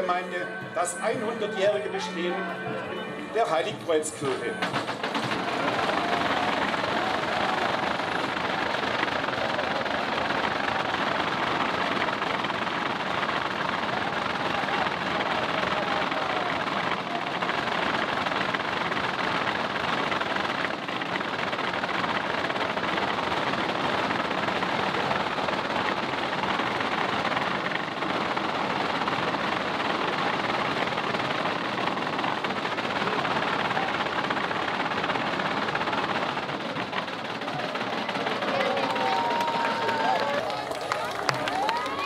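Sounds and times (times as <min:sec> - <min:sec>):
wooden rattle clattering: 0:04.2 - 0:13.9.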